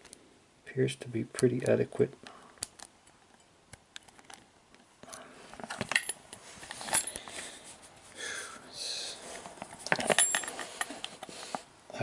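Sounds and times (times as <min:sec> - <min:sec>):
rustling: 0:09.2 - 0:11.7.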